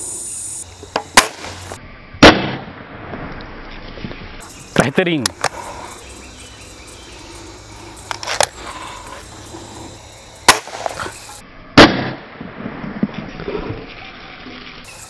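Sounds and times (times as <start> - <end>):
air rifle shot: 1.0 - 3.2, 10.4 - 11.1, 11.8 - 12.5.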